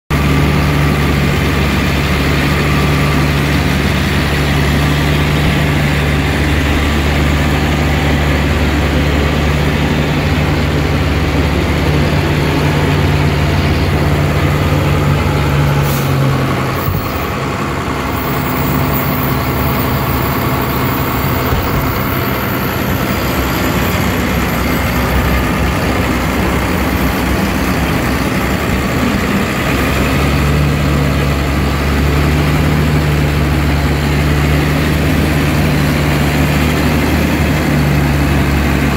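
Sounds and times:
diesel engine idling: 0.1 - 38.9.

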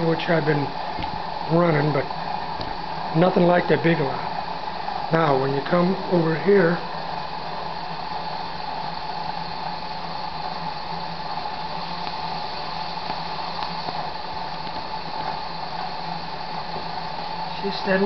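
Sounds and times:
generator hum: 0.0 - 18.0
gas bubbling through water: 6.8 - 17.5.

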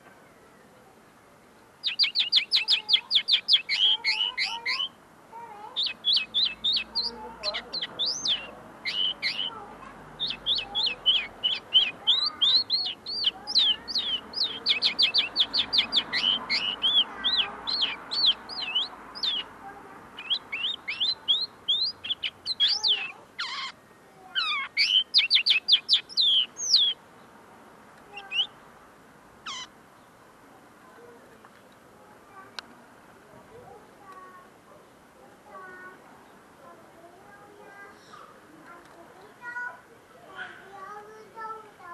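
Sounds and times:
bird call notes: 1.8 - 5.0, 5.8 - 9.6, 10.2 - 19.5, 20.1 - 23.8, 24.4 - 27.0
bird twittering song: 1.8 - 5.0, 5.6 - 27.4, 28.1 - 28.7, 29.4 - 30.2.

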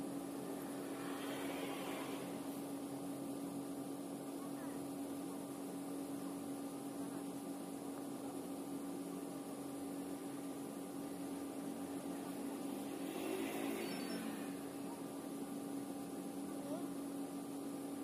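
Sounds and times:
machine drone: 0.0 - 4.9, 9.6 - 16.6.

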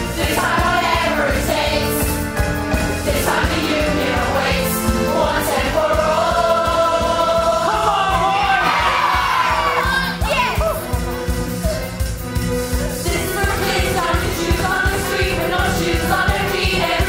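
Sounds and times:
youth choir singing in unison: 0.0 - 2.2, 3.0 - 10.1, 13.0 - 17.0
band accompaniment with steady beat: 0.0 - 8.4, 10.2 - 17.0.

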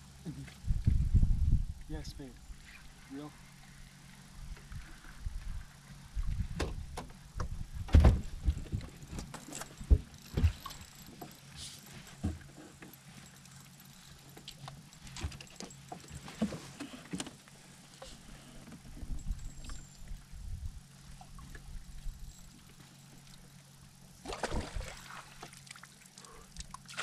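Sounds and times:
low steady hum: 0.0 - 27.0
knocks and thumps on boat deck: 6.5 - 11.3.

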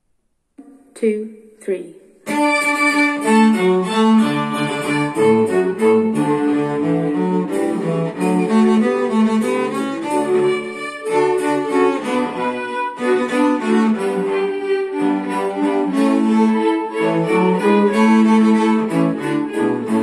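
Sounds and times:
cello bowed notes: 2.2 - 20.0.

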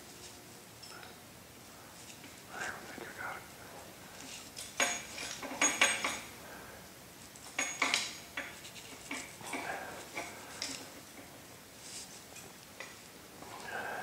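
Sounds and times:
metal hand tools clinking and scraping: 4.2 - 6.3.

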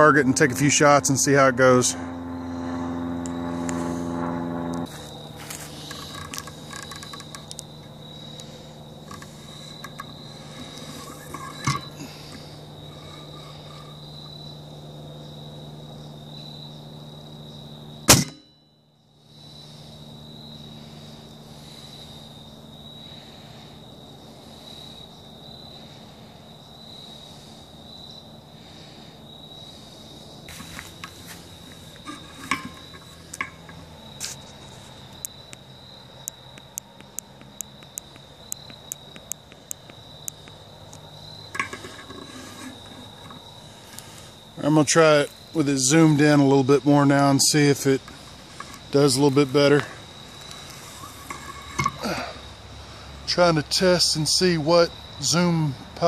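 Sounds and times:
crickets trilling: 0.0 - 56.0
light ticking clicks: 36.2 - 41.0.

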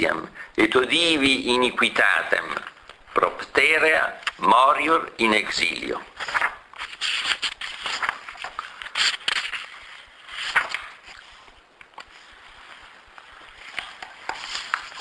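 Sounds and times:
rustling handling noise: 6.0 - 15.0.

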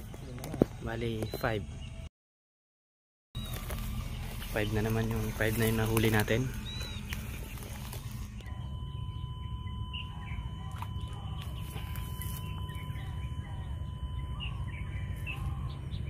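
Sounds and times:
small birds chirping: 0.0 - 2.1, 3.4 - 16.0
low outdoor rumble: 3.4 - 16.0.

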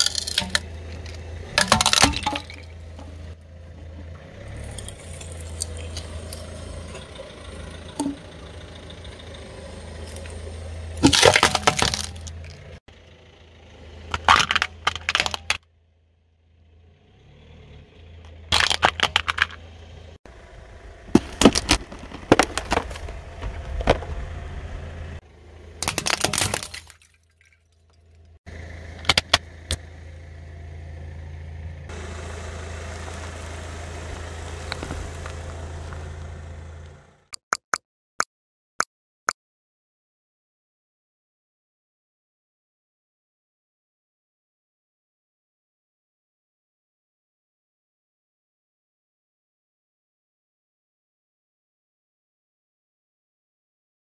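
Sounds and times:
car tyre crushing objects cracking: 0.0 - 3.4, 4.5 - 12.8, 14.0 - 15.7, 18.2 - 19.9, 21.0 - 24.5, 25.8 - 29.9, 31.9 - 37.0
car engine idling: 0.0 - 26.7, 27.8 - 37.3.

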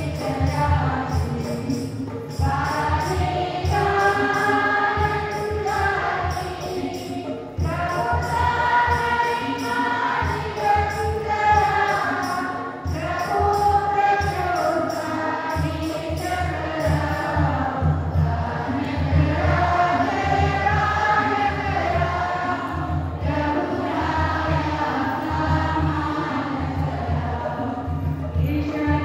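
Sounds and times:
choir singing a hymn: 0.0 - 29.0
drum steady beat: 0.0 - 29.0
jingling rhythm: 0.0 - 29.0.

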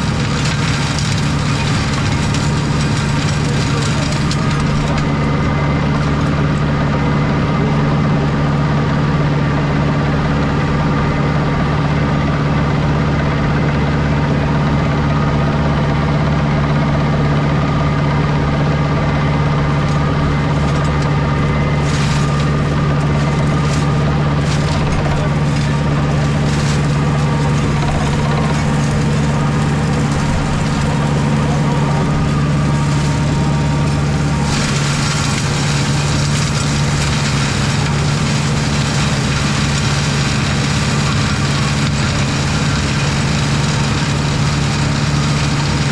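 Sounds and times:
flails cracking woody canes: 0.0 - 5.2, 19.8 - 45.6
tractor engine running under load: 0.0 - 45.9.

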